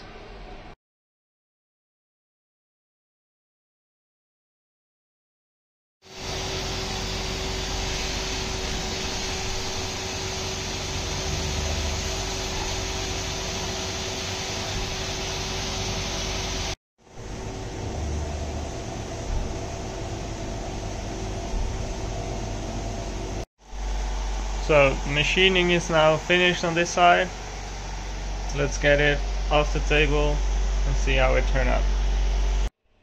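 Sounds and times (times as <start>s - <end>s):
coolant spray hiss: 6.1s - 31.8s
milling spindle hum: 6.2s - 32.7s.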